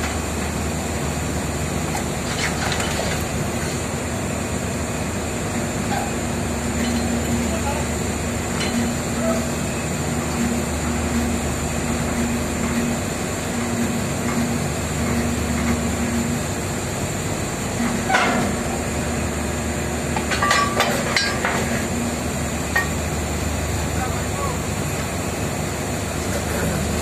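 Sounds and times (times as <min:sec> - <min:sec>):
drilling machinery drone: 0:00.0 - 0:27.0
steel pipe clanking: 0:02.2 - 0:03.8, 0:05.8 - 0:10.5, 0:17.8 - 0:18.8, 0:20.1 - 0:22.1, 0:22.7 - 0:23.1.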